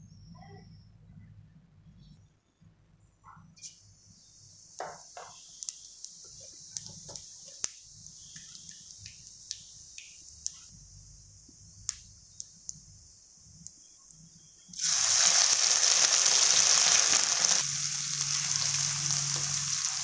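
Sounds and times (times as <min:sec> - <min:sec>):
seeds sizzling in hot oil: 0:03.6 - 0:10.7, 0:11.5 - 0:20.0
crackles and pops: 0:05.0 - 0:10.7, 0:11.4 - 0:12.9, 0:13.5 - 0:20.0.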